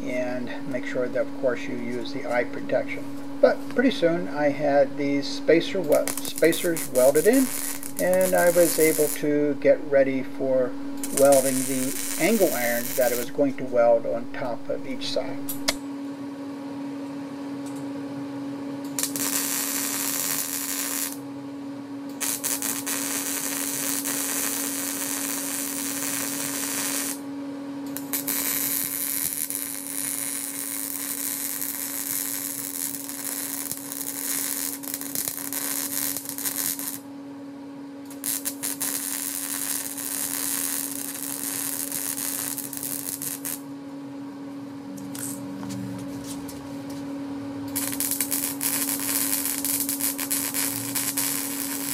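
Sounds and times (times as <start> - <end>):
welding arc crackling: 0.0 - 15.8, 18.9 - 21.2, 22.1 - 27.3, 27.9 - 37.1, 38.0 - 43.7, 45.0 - 47.0, 47.7 - 51.9
low hum: 0.0 - 17.4, 27.9 - 51.9.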